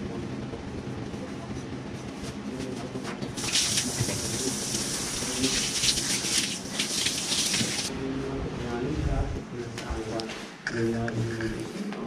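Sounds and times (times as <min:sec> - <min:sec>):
tap water running: 0:03.4 - 0:07.9.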